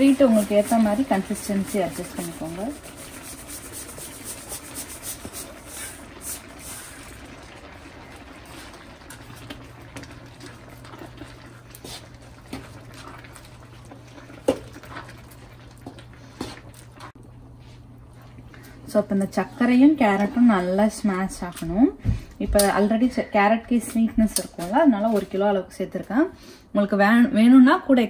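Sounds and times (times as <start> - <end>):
spatula stirring and scraping pan: 0.0 - 7.2.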